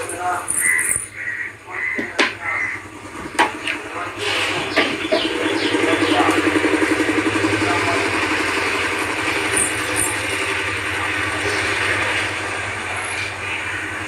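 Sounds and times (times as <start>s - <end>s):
small motor running: 2.8s - 14.0s.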